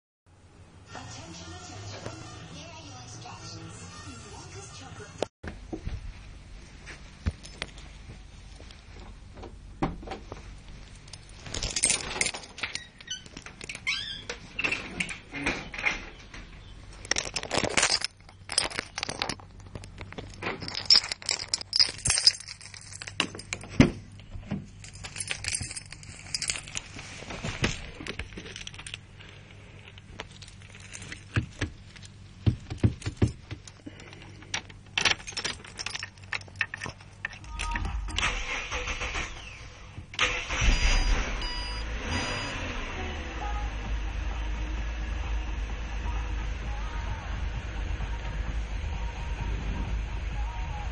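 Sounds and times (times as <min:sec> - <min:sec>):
rattles clicks and knocks: 0:09.3 - 0:38.3
car keys jangling: 0:10.9 - 0:13.9, 0:17.0 - 0:23.8, 0:24.7 - 0:27.0, 0:27.9 - 0:32.1, 0:35.0 - 0:39.0.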